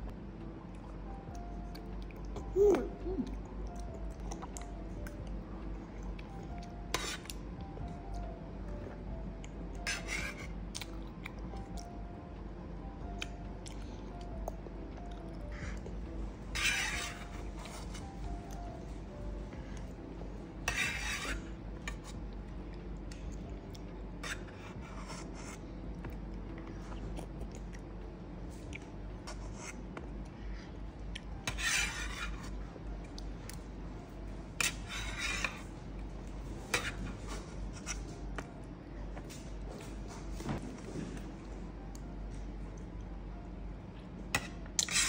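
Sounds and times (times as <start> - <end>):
spoon scraping metal tray: 6.9 - 7.3, 16.5 - 18.1, 20.6 - 22.2, 24.2 - 25.6, 31.4 - 32.5, 34.6 - 35.7, 44.4 - 45.0.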